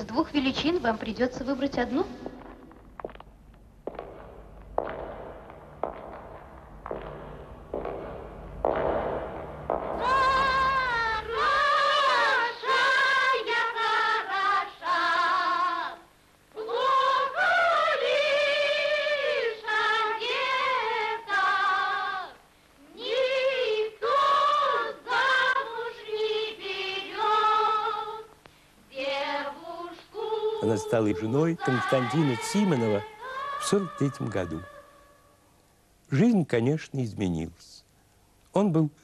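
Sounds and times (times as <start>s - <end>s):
woman singing with vibrato: 10.0s - 28.3s, 28.9s - 30.7s.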